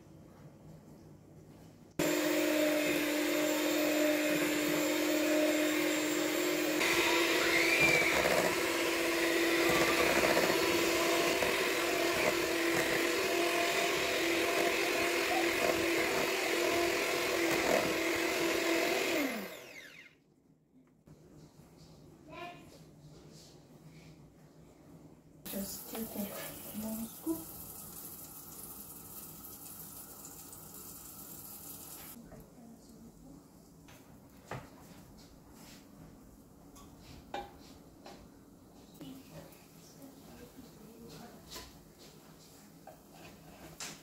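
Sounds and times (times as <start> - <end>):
electric hand mixer whirring: 2.0 - 20.1.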